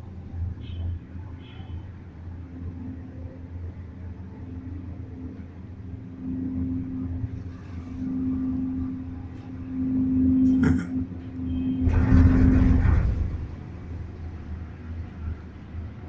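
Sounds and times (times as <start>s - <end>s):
cable car mechanical hum: 0.0s - 16.0s
low rumble: 5.4s - 15.4s.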